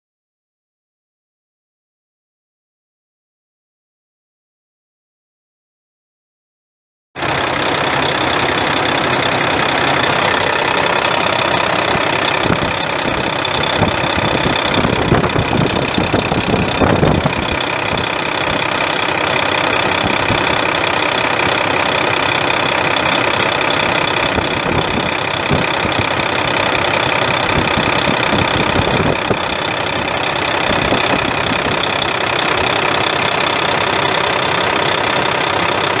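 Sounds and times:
diesel truck engine idling: 7.2 - 36.0.

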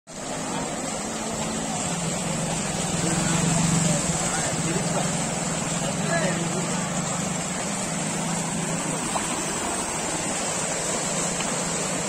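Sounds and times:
water splashing hiss: 0.1 - 12.0
small motorcycle engine: 1.2 - 12.0.

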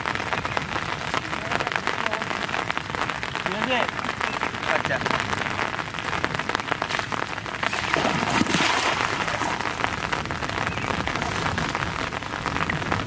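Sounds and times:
heavy rain on water: 0.0 - 13.0
cast net splashing into water: 6.8 - 9.9.

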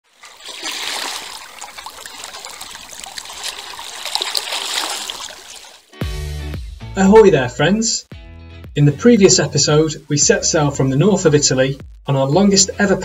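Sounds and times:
sea water lapping: 0.0 - 5.9.

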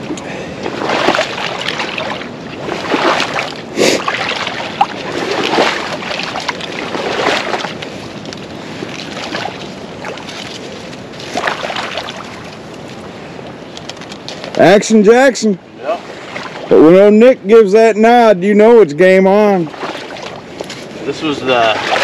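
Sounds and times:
water sloshing: 0.0 - 14.6, 15.9 - 16.8, 19.3 - 22.0.

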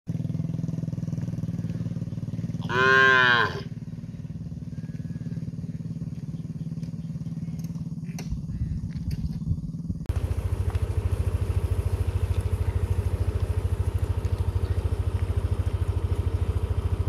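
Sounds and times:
steady low hum: 0.2 - 17.0
calf mooing: 2.6 - 3.7.

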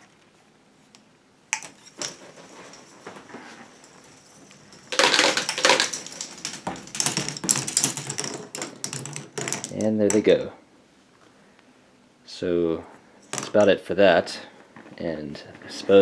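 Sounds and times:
plastic balls clattering on tracks: 3.8 - 10.3.

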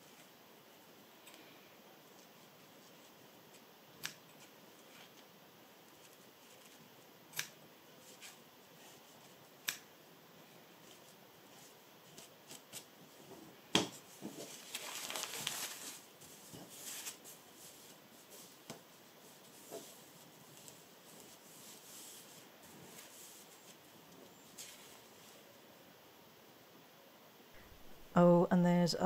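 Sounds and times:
soft rustle of thread on fabric: 2.0 - 3.7, 4.3 - 7.2, 10.4 - 25.6
scissors snipping thread: 4.0 - 4.4, 7.3 - 7.6, 9.6 - 9.9.

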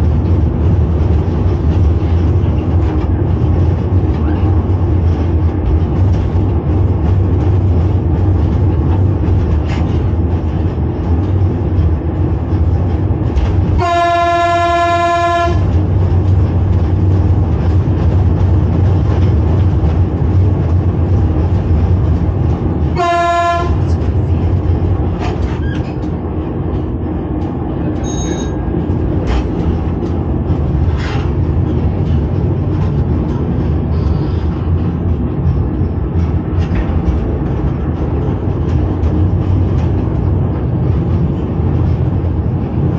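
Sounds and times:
train running low rumble: 0.0 - 42.9
train whistle: 13.8 - 15.6, 23.0 - 23.8.

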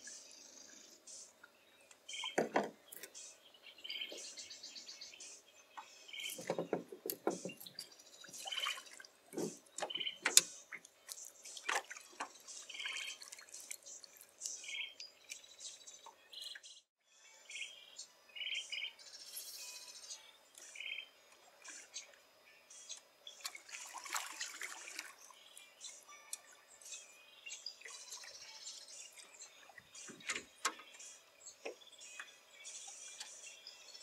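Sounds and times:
birds chirping: 0.0 - 24.0, 24.8 - 34.0
water splashing and dripping: 6.3 - 15.4, 23.3 - 25.4.

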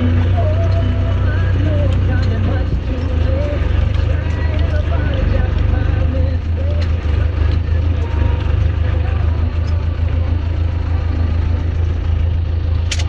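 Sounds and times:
tractor diesel engine under load: 0.0 - 13.0.

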